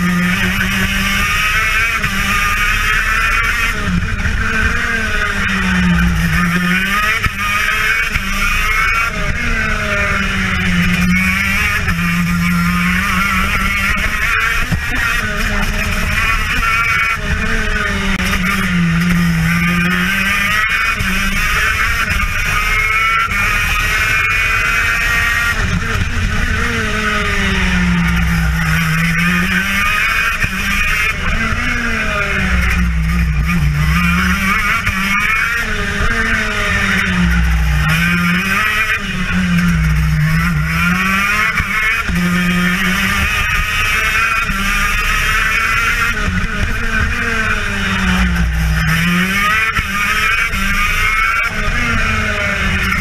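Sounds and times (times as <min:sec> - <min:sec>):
two-stroke kart engine: 0:00.0 - 0:53.0.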